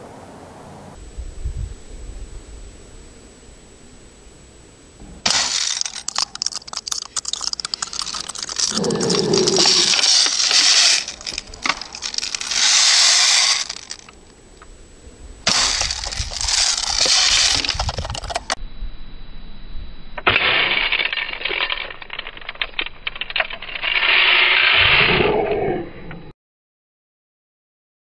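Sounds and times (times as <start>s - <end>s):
bursts of hissing noise: 5.0s - 14.6s, 15.4s - 18.6s
plastic eggs cracking: 5.3s - 14.2s, 15.5s - 18.6s.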